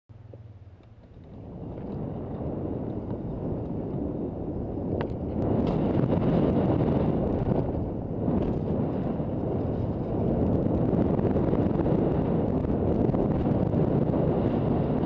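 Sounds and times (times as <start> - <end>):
bike tyres rolling on dirt: 0.2 - 15.0
wind on microphone: 0.8 - 15.0.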